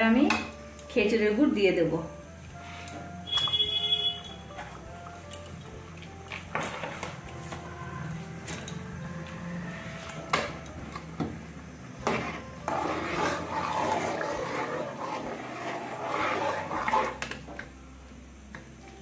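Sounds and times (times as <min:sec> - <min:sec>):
pudding sloshing and scraping: 0:12.0 - 0:17.3.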